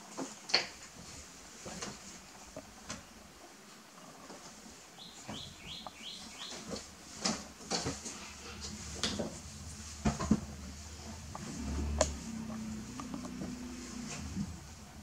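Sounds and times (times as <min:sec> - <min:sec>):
knocks and bumps against wall: 0:08.6 - 0:10.8.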